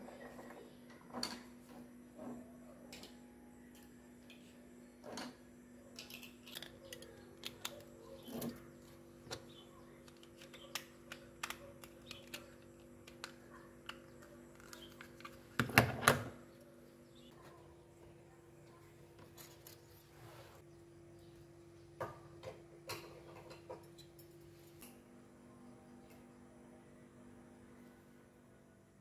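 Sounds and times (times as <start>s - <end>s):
hands clicking and rustling lights: 9.3s - 15.4s.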